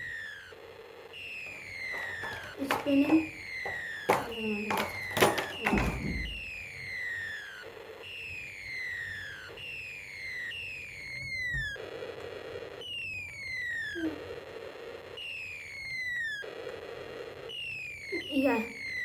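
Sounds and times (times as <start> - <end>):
falling whistle sound effect: 1.2 - 11.8.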